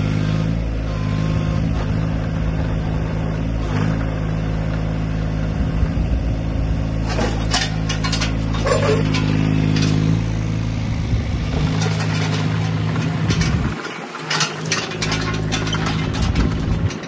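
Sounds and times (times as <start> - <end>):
excavator diesel engine running: 0.0 - 17.0
machine clanks and rattles: 7.0 - 10.4, 11.5 - 17.0.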